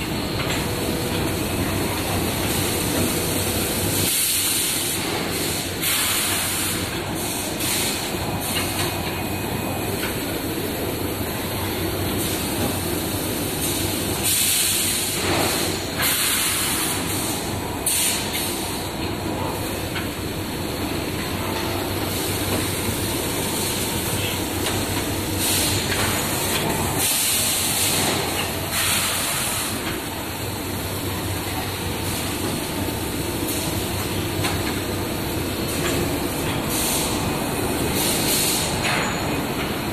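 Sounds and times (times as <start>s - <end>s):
compressed air hiss: 15.5s - 18.4s, 27.0s - 29.9s, 36.7s - 37.2s, 38.0s - 38.8s.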